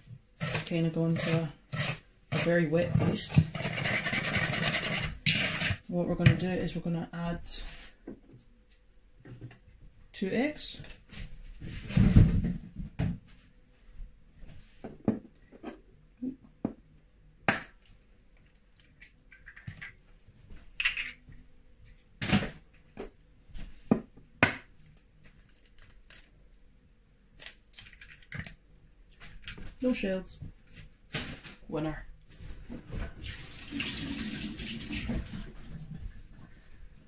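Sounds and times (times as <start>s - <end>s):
eggshell crackling apart: 27.4s - 28.6s.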